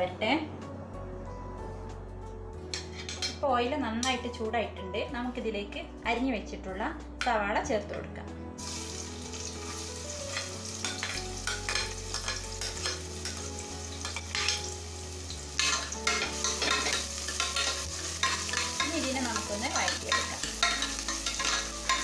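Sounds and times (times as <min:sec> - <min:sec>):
onions sizzling in oil: 0:08.6 - 0:22.0.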